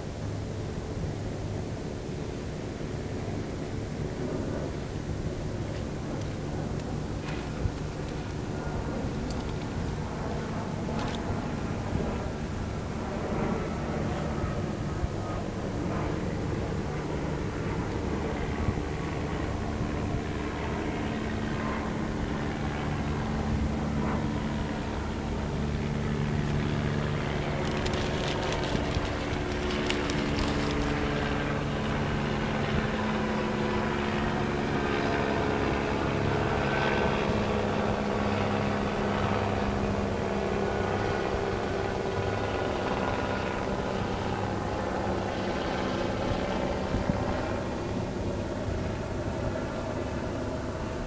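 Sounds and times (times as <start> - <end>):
engine drone: 0.0 - 51.0
crackling: 26.4 - 31.3.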